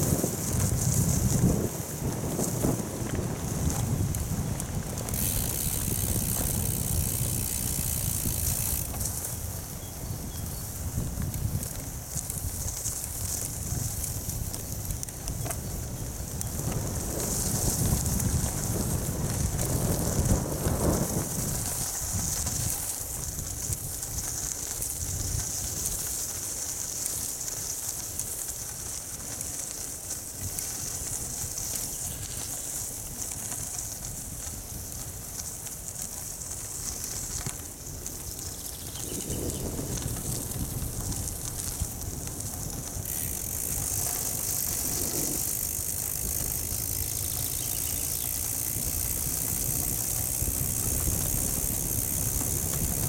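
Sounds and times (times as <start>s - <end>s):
wind buffeting microphone: 0.0s - 26.6s, 30.0s - 53.0s
bicycle tyres on gravel: 0.0s - 53.0s.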